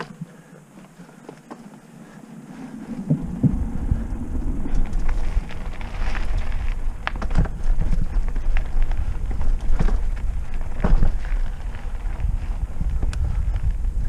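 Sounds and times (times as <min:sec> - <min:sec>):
bike tyres crackling over dirt: 0:00.0 - 0:14.0
wind rumble on microphone: 0:01.7 - 0:14.0
bike knocks and rattles: 0:03.0 - 0:14.0.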